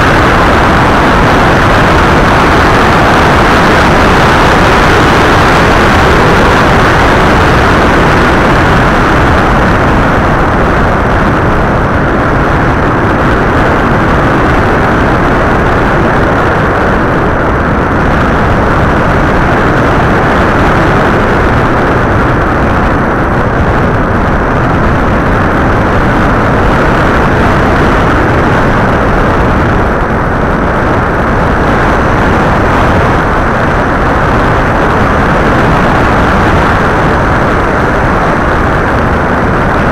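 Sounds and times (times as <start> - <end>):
wind rush: 0.0 - 39.9.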